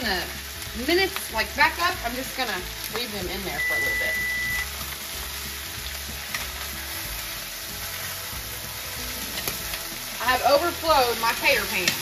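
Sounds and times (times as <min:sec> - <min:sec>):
potatoes sizzling in oil: 0:00.0 - 0:12.0.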